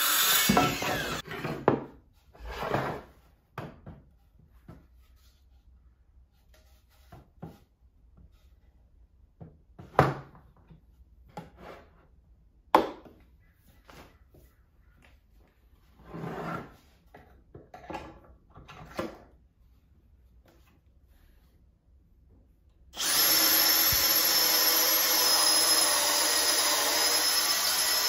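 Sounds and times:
board scraping into place: 0:00.6 - 0:03.2.

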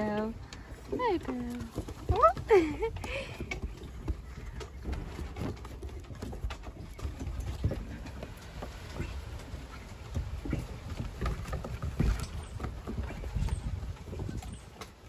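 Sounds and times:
puppy claws tapping on wooden deck: 0:00.1 - 0:08.8.

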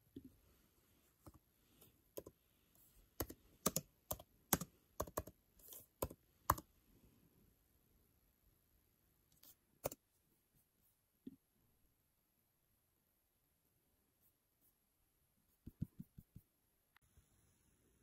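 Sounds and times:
typing on laptop keyboard: 0:03.2 - 0:06.7.

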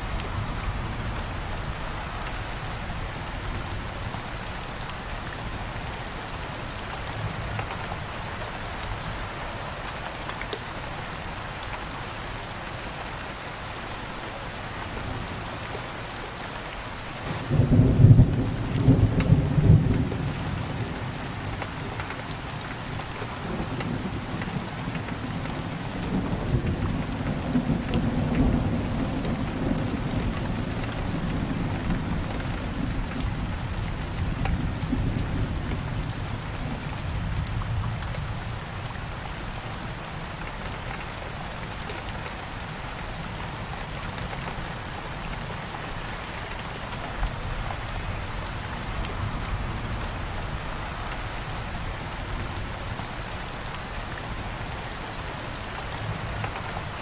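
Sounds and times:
heavy rain against window: 0:00.0 - 0:57.0.

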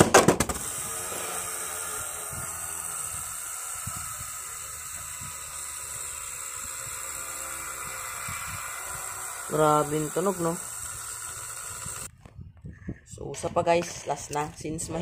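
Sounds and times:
spinning top whirring: 0:00.3 - 0:12.1.

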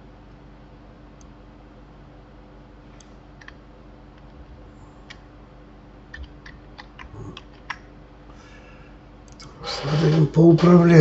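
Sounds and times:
faint steady hum: 0:00.0 - 0:11.0
mouse and keyboard clicks: 0:06.1 - 0:07.8.

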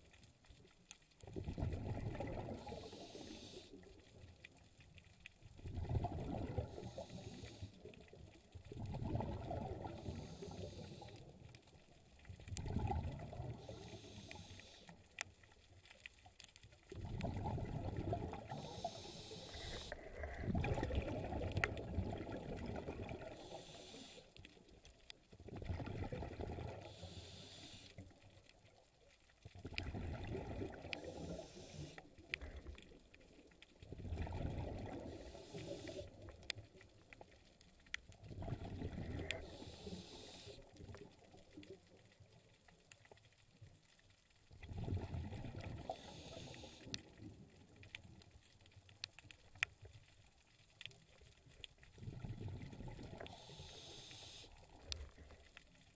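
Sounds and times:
diver breathing through regulator: 0:02.3 - 0:03.9, 0:06.6 - 0:07.9, 0:09.8 - 0:11.3, 0:13.5 - 0:15.0, 0:18.2 - 0:21.1, 0:23.2 - 0:24.4, 0:26.6 - 0:28.0, 0:30.8 - 0:32.1, 0:35.0 - 0:36.2, 0:38.9 - 0:40.7, 0:45.8 - 0:47.0, 0:53.1 - 0:55.1.

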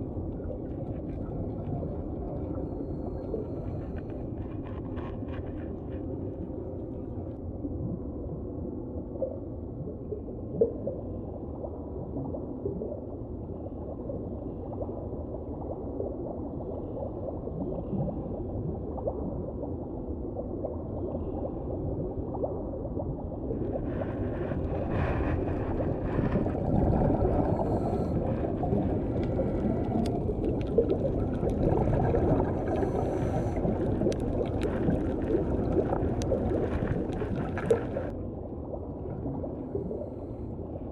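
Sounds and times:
crackles and clicks: 0:00.0 - 0:08.1, 0:22.4 - 0:40.1
muffled underwater rumble: 0:00.0 - 0:40.9.

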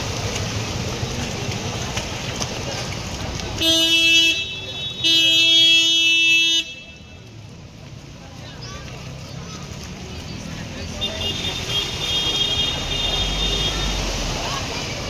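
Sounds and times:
rushing floodwater: 0:00.0 - 0:15.0
street noise: 0:00.0 - 0:15.0
vehicle horn honking: 0:03.6 - 0:07.1, 0:11.0 - 0:14.0.

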